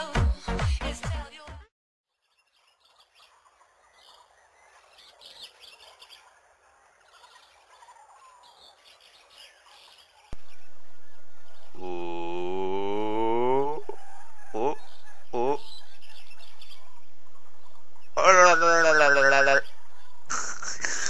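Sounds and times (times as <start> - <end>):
birds chirping: 2.1 - 21.0
steady low hum: 10.4 - 21.0.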